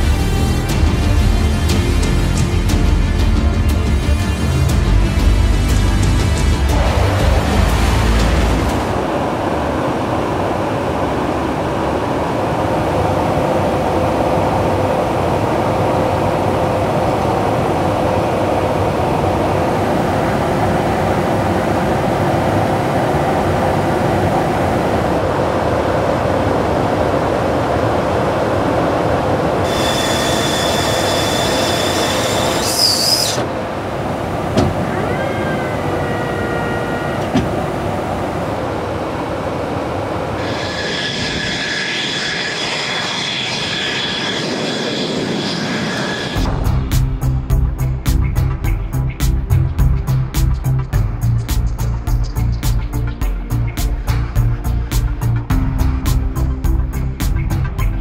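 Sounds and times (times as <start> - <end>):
jet engine and airflow roar: 0.0 - 58.0
high hiss and whine: 4.3 - 49.1.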